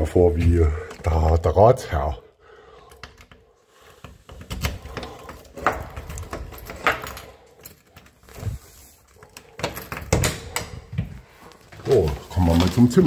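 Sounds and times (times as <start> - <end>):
keychain rattling and jingling: 4.8 - 10.8.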